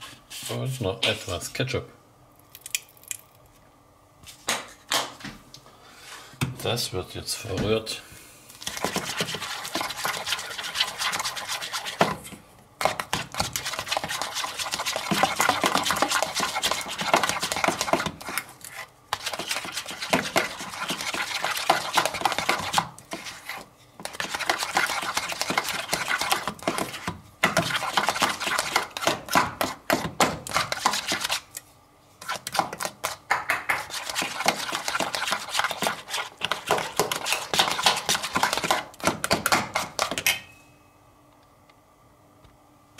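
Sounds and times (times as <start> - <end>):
utensil scraping against bowl: 8.6 - 12.2, 12.8 - 31.6, 32.2 - 38.8.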